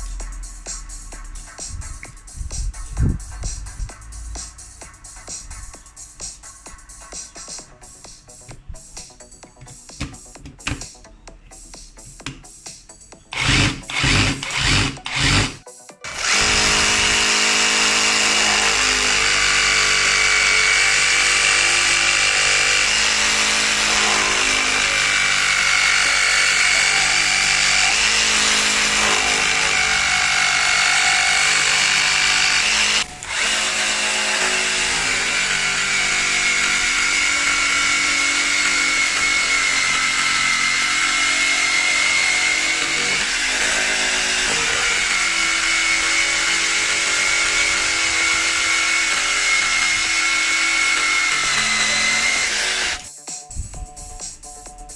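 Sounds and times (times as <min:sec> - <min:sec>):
reciprocating saw cutting wood: 0:13.3 - 0:53.1.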